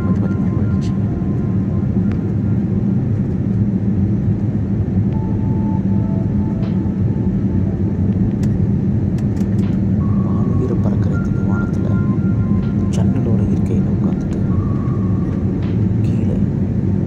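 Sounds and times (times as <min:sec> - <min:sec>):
jet engine and airflow rumble: 0:00.0 - 0:17.0.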